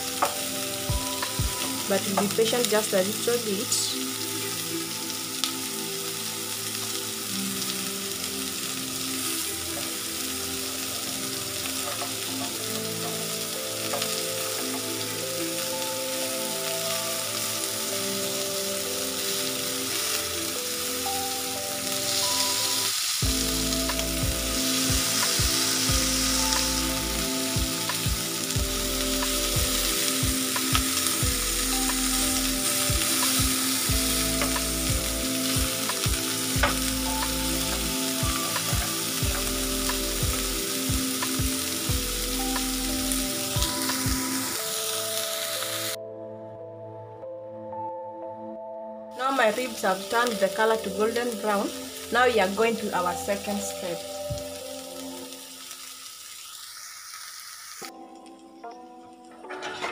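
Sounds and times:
meat sizzling in grill pan: 0.0 - 46.0, 49.2 - 58.4
background music with bass: 23.2 - 44.5.

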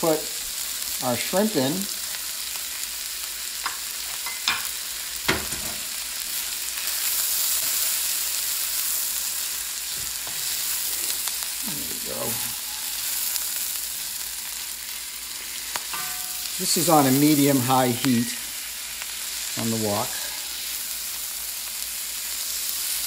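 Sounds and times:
food sizzling in a wok: 0.0 - 23.0
metal spatula stirring: 10.2 - 13.8, 15.9 - 16.8.

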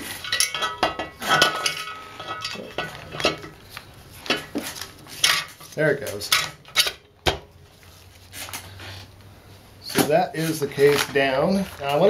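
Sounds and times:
metal parts clinking: 0.0 - 3.6.

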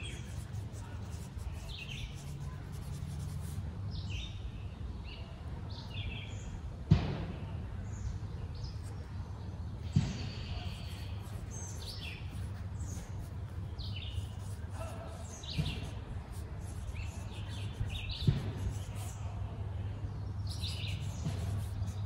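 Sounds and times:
songbirds chirping: 0.0 - 22.0
sharp knocks: 18.2 - 19.0.

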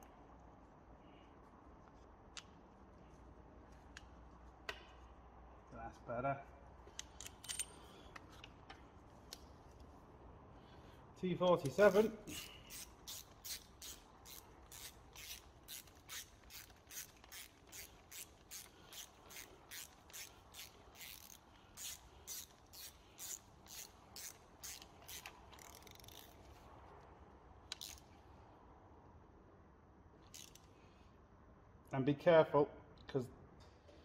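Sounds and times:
ratchet wrench clicking: 6.9 - 7.8, 11.6 - 26.5, 27.7 - 28.1, 30.3 - 30.7.

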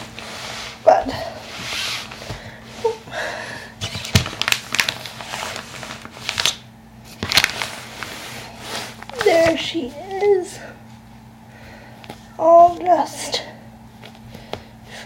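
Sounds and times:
fabric rustling: 0.0 - 3.0.

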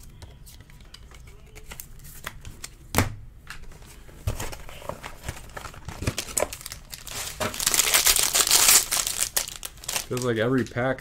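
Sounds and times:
cards tapping and rustling: 0.1 - 9.2
foil pack crinkling: 4.7 - 11.0.

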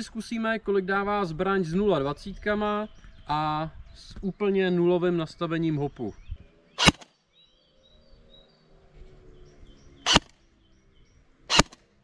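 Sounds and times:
faint birdsong chirps: 0.0 - 12.0
airsoft gun shots: 6.8 - 7.1, 10.1 - 10.3, 11.5 - 11.9.

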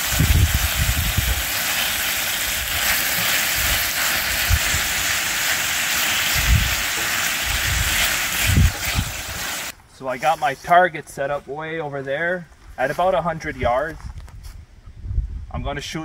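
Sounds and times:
beef sizzling in a frying pan: 0.0 - 9.7.

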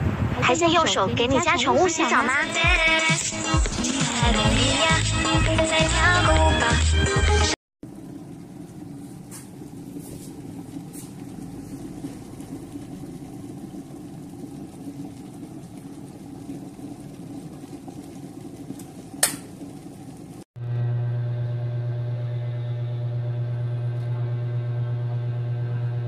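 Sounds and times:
kettle water rumbling: 0.0 - 26.0
kettle switch click: 19.2 - 19.5.

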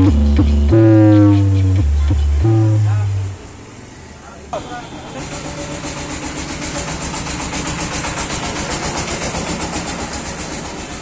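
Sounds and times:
loudspeakers playing pulsing beat: 0.0 - 3.4
steady low hum: 0.0 - 3.7.

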